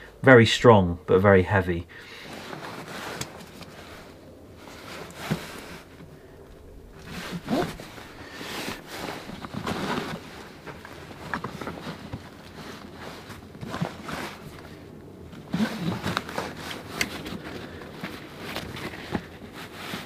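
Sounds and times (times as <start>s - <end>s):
webbing straps rustling: 2.2s - 20.0s.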